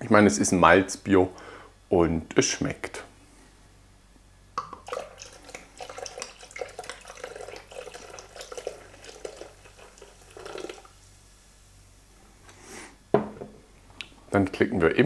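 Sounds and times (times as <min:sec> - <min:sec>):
beer gurgling into a bowl: 0:04.6 - 0:11.3.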